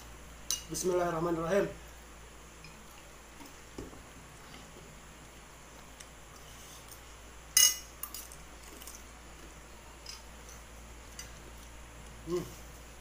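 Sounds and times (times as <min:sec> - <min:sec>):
spoon clinking against a plate: 0:07.6 - 0:08.3.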